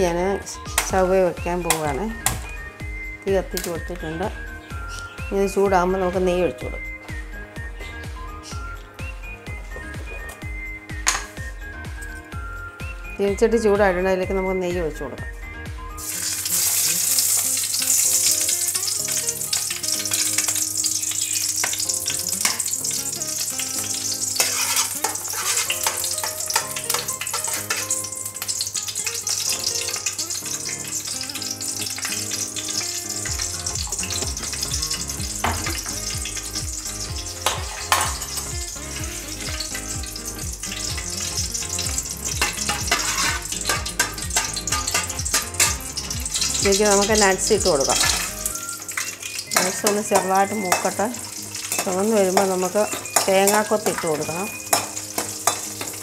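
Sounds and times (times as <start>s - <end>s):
ghee sizzling in a pan: 0.0s - 13.2s, 15.8s - 56.0s
spoon clicking against pan: 24.4s - 28.5s, 42.4s - 45.8s, 51.6s - 56.0s.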